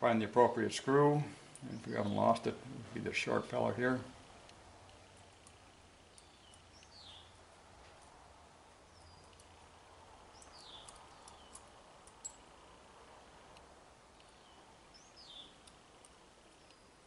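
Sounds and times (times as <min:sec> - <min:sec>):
faint light ticks: 0:04.4 - 0:07.1, 0:09.0 - 0:09.6, 0:10.4 - 0:12.4, 0:13.5 - 0:14.6, 0:15.2 - 0:16.9.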